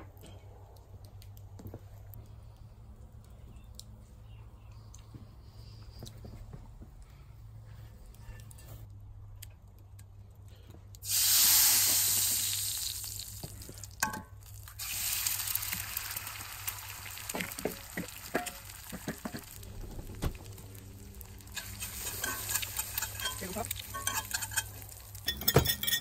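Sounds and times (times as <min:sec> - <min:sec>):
egg frying with crackles: 0:10.9 - 0:26.0
skillet sizzling: 0:11.0 - 0:26.0.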